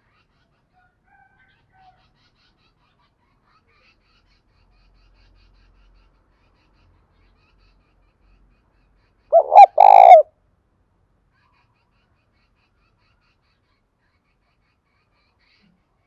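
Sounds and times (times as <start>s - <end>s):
dove cooing: 9.3s - 10.3s.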